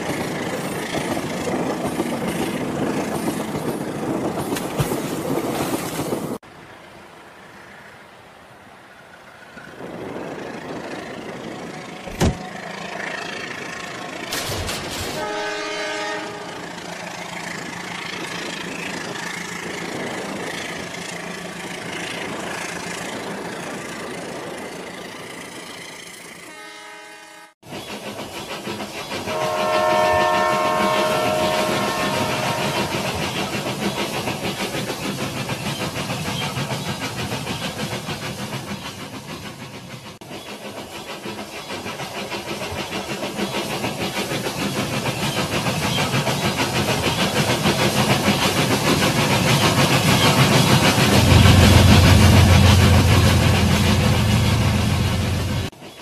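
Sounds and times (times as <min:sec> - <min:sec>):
toy train horn: 0:15.2 - 0:16.6, 0:26.5 - 0:27.6, 0:29.3 - 0:33.0.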